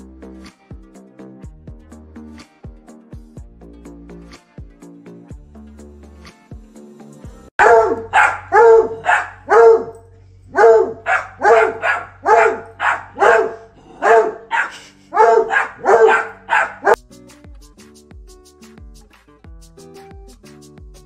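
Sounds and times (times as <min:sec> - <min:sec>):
dog barking: 0:07.6 - 0:17.0.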